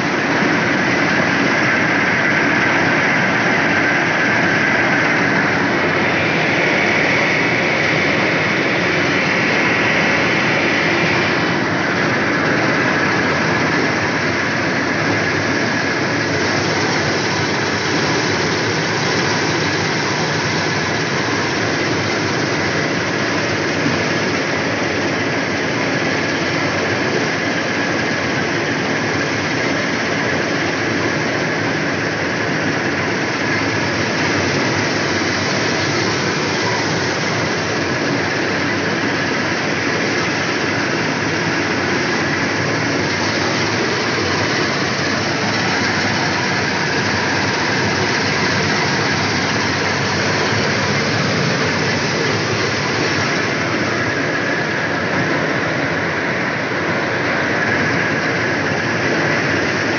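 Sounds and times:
combine harvester running: 0.0s - 59.9s
high whine: 0.0s - 59.9s.

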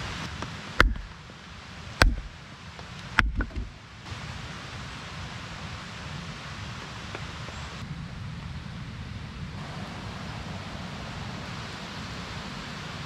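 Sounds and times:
rain hissing: 0.0s - 13.0s
sharp knocks: 0.8s - 1.2s, 2.0s - 2.3s, 3.2s - 3.7s.

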